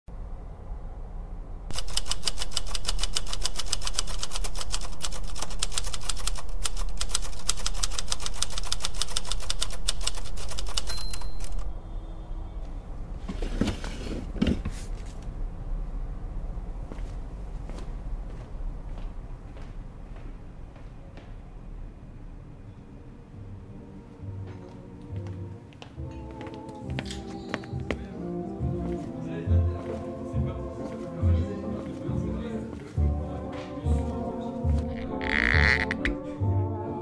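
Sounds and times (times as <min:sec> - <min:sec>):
manual typewriter typing: 0:01.7 - 0:11.7
typewriter bell ring: 0:08.8 - 0:11.7.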